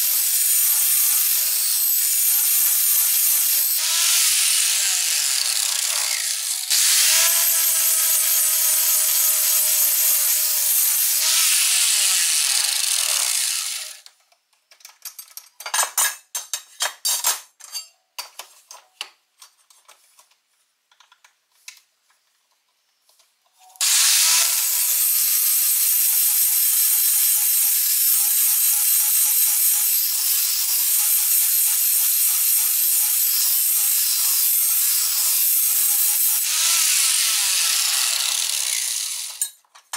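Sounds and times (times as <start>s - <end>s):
angle grinder grinding steel: 0.0s - 14.0s, 23.8s - 39.6s.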